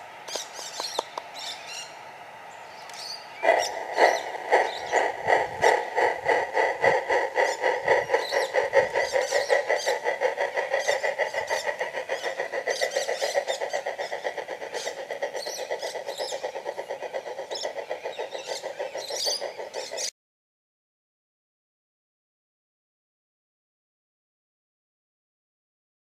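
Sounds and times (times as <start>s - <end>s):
electronic steam locomotive chuffs: 3.0s - 20.1s.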